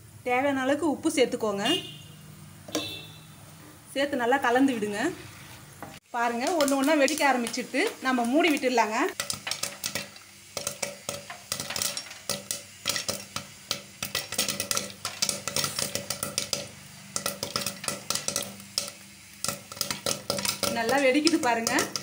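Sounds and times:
oil sizzling: 0:00.0 - 0:22.0
popcorn popping: 0:06.2 - 0:22.0.

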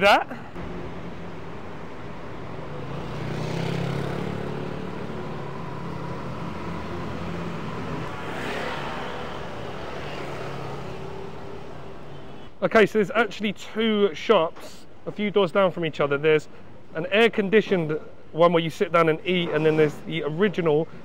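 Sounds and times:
vehicle passing: 0:00.6 - 0:11.9.

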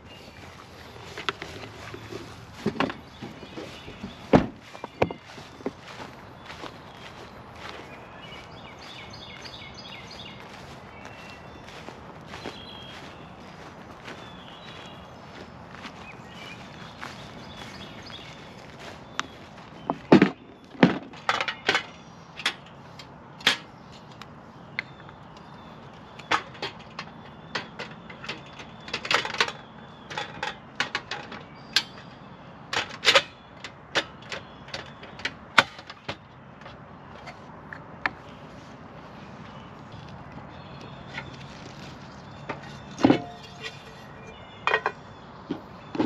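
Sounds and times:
camping gear clattering on table: 0:20.1 - 0:21.9, 0:42.5 - 0:43.9, 0:44.6 - 0:45.0.

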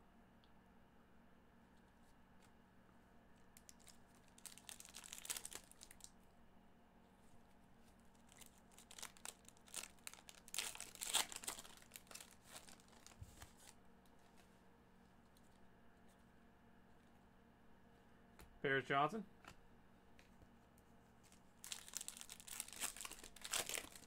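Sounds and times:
plastic wrapper tearing and crinkling: 0:03.6 - 0:06.1, 0:08.1 - 0:13.8, 0:21.3 - 0:24.0.

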